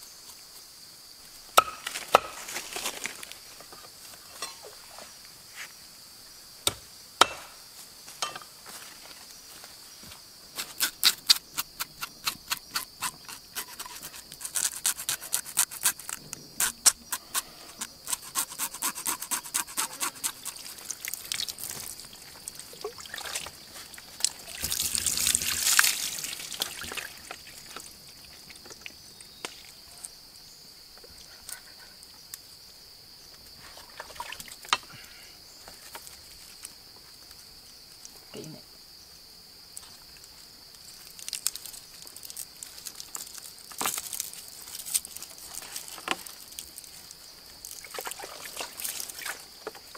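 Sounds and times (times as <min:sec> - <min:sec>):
insect drone: 0:00.0 - 0:49.9
sharp taps and scrapes: 0:10.6 - 0:20.6
water splashing and running: 0:19.8 - 0:27.8, 0:33.8 - 0:34.6, 0:47.6 - 0:49.8.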